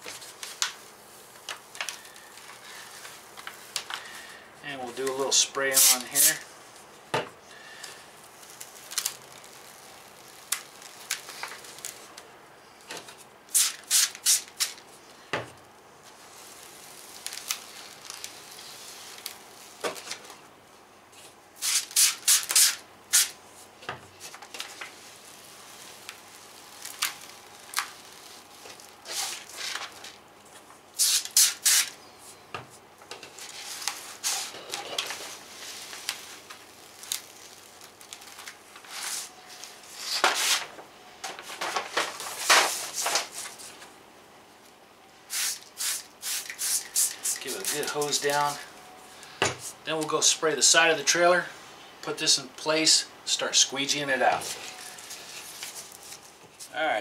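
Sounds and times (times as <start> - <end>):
paper backing peeled off: 8.4 - 12.1, 16.1 - 20.3, 24.2 - 30.2, 33.3 - 40.7.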